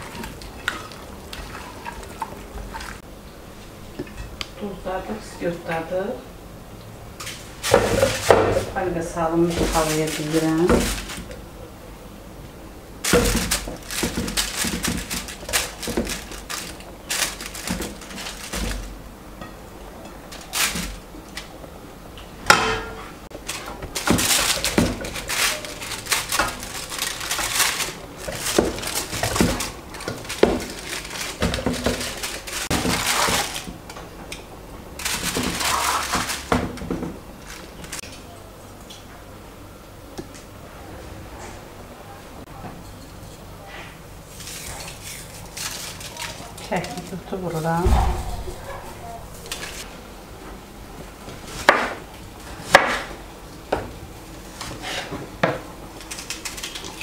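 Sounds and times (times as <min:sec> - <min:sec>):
aluminium foil crinkling: 0:07.2 - 0:11.4, 0:13.0 - 0:19.0, 0:20.2 - 0:21.5, 0:23.3 - 0:33.9, 0:35.0 - 0:38.2, 0:44.3 - 0:49.9, 0:55.9 - 0:57.0.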